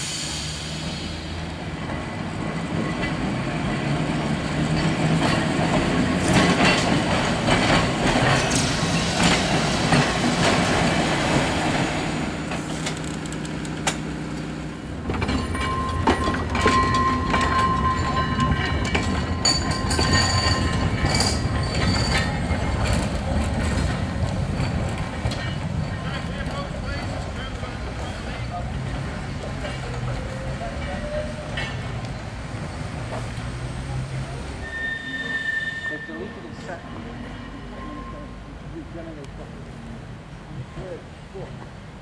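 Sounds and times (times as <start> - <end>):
tram wheels rumbling over rail joints: 0.0 - 42.0
wheels squealing: 15.0 - 38.6.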